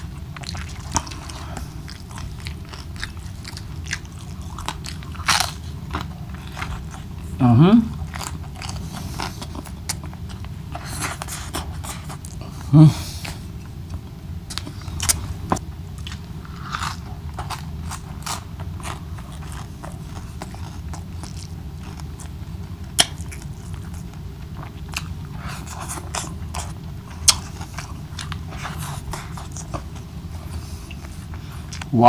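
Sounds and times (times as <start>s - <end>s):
man chewing and smacking food: 0.0s - 32.0s.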